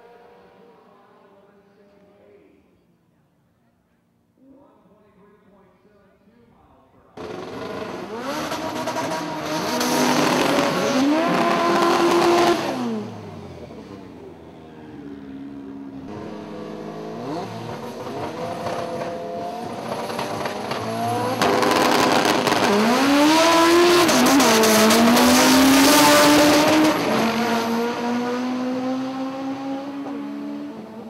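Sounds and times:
drag car engines revving and accelerating: 7.2s - 31.0s.

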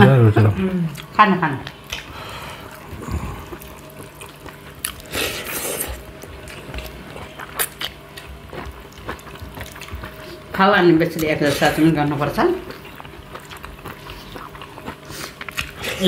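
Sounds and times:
lip smacks and chewing: 1.7s - 2.1s, 12.7s - 15.8s.

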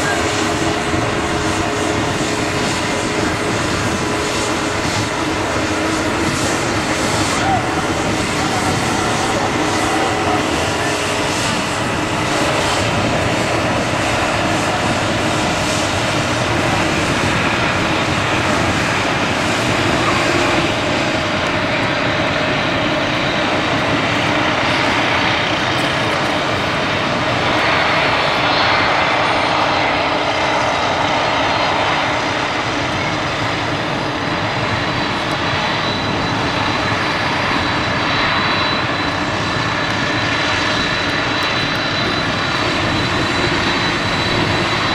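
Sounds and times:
jet engines roaring: 0.0s - 44.9s.

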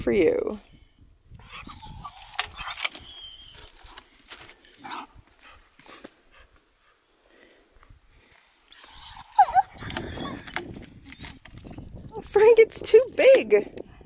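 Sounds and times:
dog whining: 1.4s - 3.8s, 8.7s - 11.4s.

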